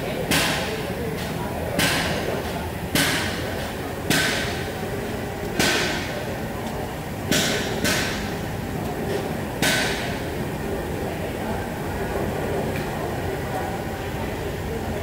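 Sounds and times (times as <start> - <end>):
steady background hum: 0.0 - 15.0
sharp hammer-like knocks: 4.1 - 4.6, 5.6 - 6.1, 7.3 - 8.3, 9.6 - 10.2.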